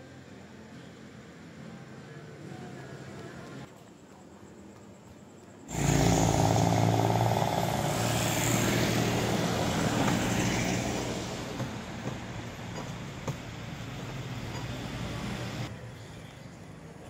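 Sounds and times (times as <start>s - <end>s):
faint street background: 0.0s - 17.0s
vehicle engine passing: 5.7s - 12.6s.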